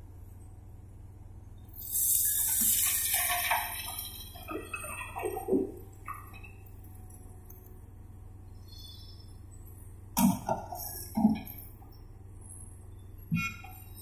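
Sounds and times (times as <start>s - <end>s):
diesel engine drone: 0.0s - 14.0s
coal pouring into truck bed: 1.8s - 6.3s.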